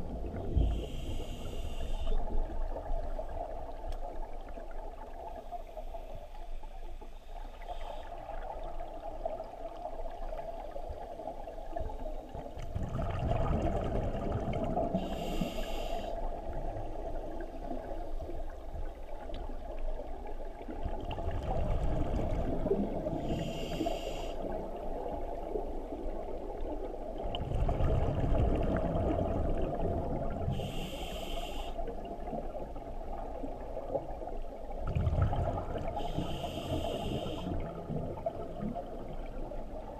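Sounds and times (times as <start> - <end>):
exhaled bubbles rumbling: 0.0 - 1.3, 8.2 - 15.3, 16.3 - 23.7, 24.4 - 30.7, 31.9 - 39.9
regulator inhale hiss: 0.6 - 2.3, 7.6 - 8.2, 14.9 - 16.5, 23.2 - 24.6, 30.5 - 31.9, 35.9 - 37.7.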